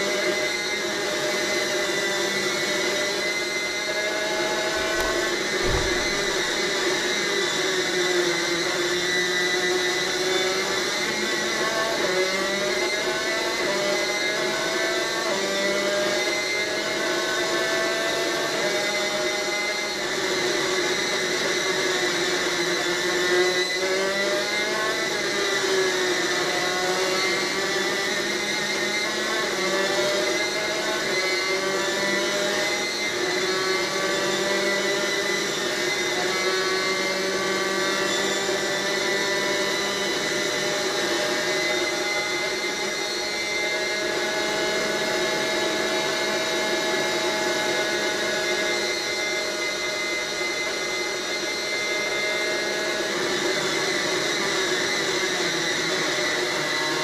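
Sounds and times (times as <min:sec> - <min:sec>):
two-stroke racing engine at speed: 0:04.6 - 0:06.6.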